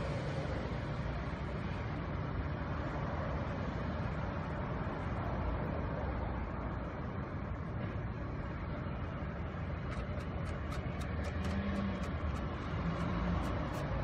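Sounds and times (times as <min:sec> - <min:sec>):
road traffic rumble: 0:00.0 - 0:14.0
small sharp clicks: 0:09.9 - 0:14.0.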